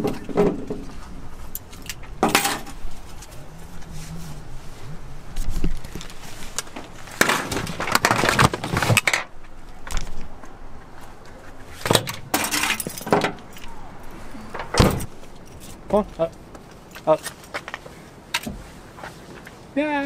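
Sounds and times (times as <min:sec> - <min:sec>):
gear clattering and clinking: 0:11.9 - 0:13.8.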